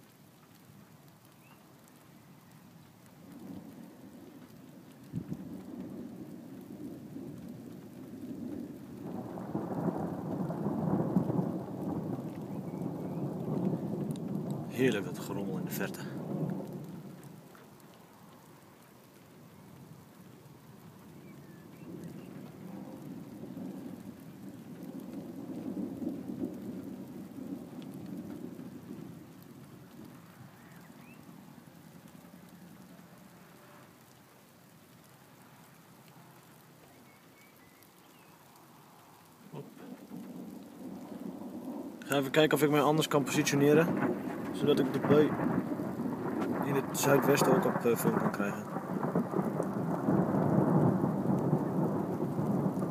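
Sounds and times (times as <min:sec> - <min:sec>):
distant thunder rumbling: 0:01.4 - 0:34.2, 0:38.6 - 0:52.9.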